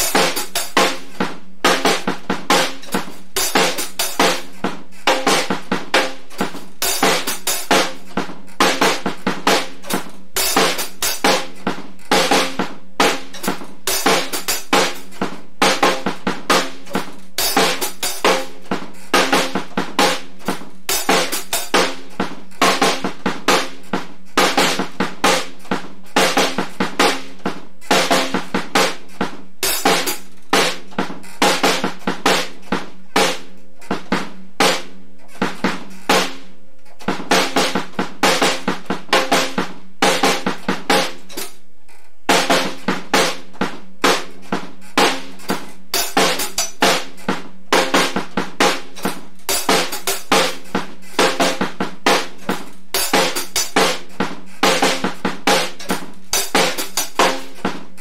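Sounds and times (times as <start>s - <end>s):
drum kit playing a steady beat: 0.0s - 58.0s.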